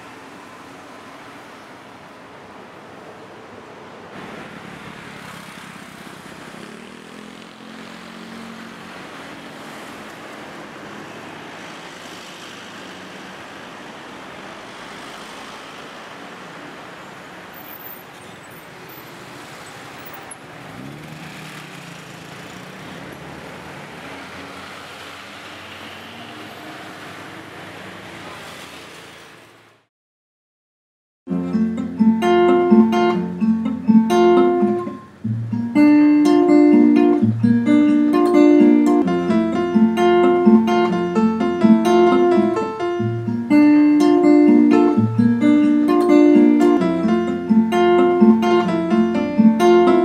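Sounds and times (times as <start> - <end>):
vehicles passing on city road: 0.0 - 29.9, 31.3 - 50.0
vehicle engine revving: 4.2 - 10.0, 20.4 - 29.1.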